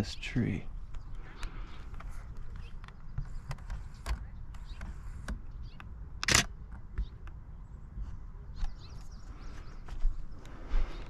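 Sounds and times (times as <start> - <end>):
camera shutter burst: 6.2 - 6.5.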